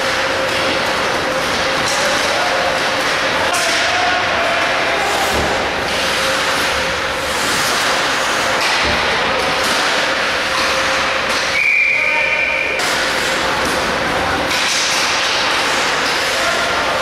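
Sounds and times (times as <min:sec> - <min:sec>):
sticks and pucks knocking: 0:00.0 - 0:11.6, 0:12.8 - 0:17.0
skates hissing on ice: 0:05.9 - 0:08.7
whistle blowing: 0:11.6 - 0:12.8.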